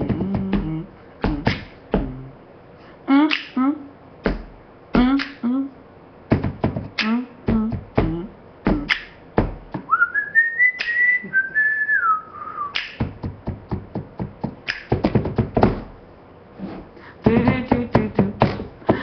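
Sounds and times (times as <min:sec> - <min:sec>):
woman beatboxing: 0:00.0 - 0:02.4, 0:03.1 - 0:09.9, 0:10.7 - 0:11.4, 0:12.7 - 0:15.9, 0:17.2 - 0:19.0
woman singing short notes: 0:03.1 - 0:03.9, 0:05.0 - 0:05.8, 0:07.0 - 0:09.0
whistled phrase: 0:09.9 - 0:13.0.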